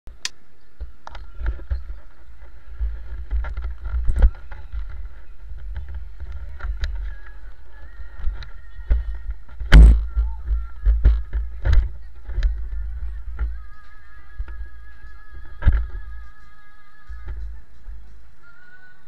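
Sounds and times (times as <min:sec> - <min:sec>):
motorcycle engine rumble: 0:00.1 - 0:18.8
wind on microphone: 0:01.2 - 0:13.8.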